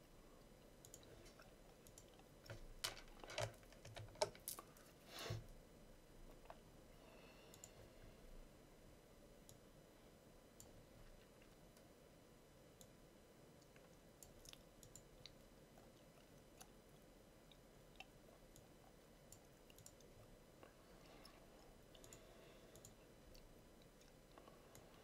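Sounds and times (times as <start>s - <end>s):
faint computer mouse clicks: 7.5s - 7.8s, 22.0s - 23.0s.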